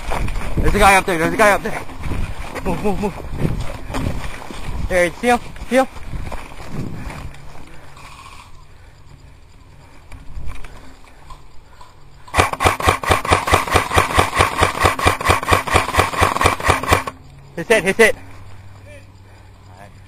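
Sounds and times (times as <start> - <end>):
airsoft rifle full-auto burst: 12.3 - 17.2.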